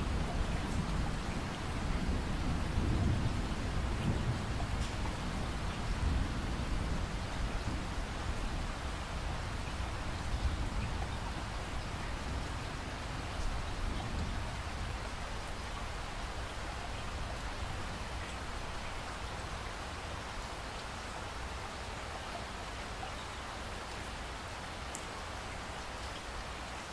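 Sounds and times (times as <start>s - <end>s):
low thunder rumble: 0.0s - 15.6s
steady rain falling: 0.0s - 26.9s.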